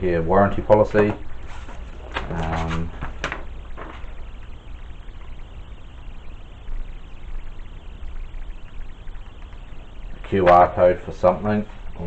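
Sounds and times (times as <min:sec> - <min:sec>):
low steady hum: 0:00.0 - 0:12.0
paper rustling and shuffling: 0:01.0 - 0:04.2.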